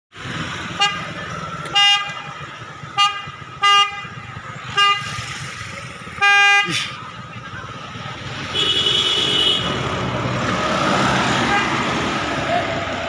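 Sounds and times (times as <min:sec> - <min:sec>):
road traffic rumble: 0:00.1 - 0:13.0
bus horn blasts: 0:00.7 - 0:01.1, 0:01.7 - 0:05.2, 0:06.2 - 0:06.9, 0:08.5 - 0:09.9, 0:11.4 - 0:11.9.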